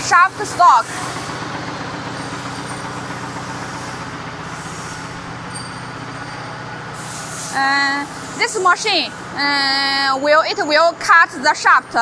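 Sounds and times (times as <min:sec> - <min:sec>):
machinery hiss: 0:00.0 - 0:09.6
machinery humming: 0:00.0 - 0:12.0.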